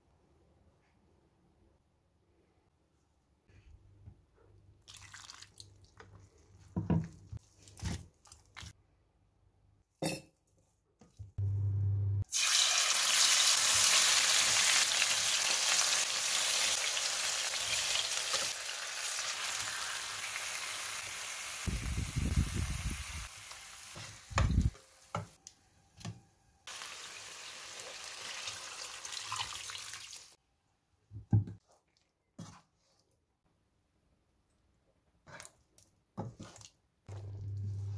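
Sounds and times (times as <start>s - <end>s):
food sizzling in hot oil: 12.2s - 25.2s, 26.7s - 30.4s.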